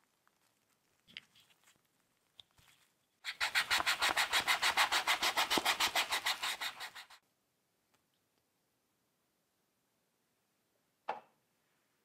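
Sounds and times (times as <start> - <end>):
rapid rubbing scrape: 3.2 - 7.2.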